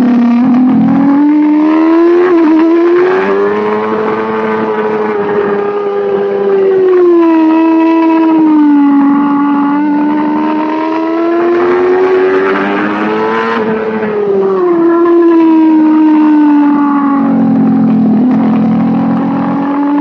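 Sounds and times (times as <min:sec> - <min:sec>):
racing motorcycle engine revving: 0:00.0 - 0:20.0.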